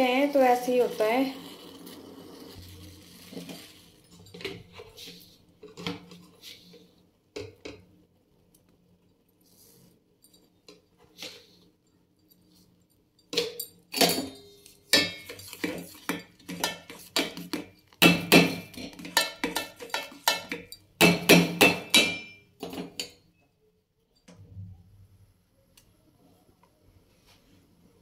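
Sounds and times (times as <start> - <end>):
spoon clinking in metal pan: 13.2 - 23.2.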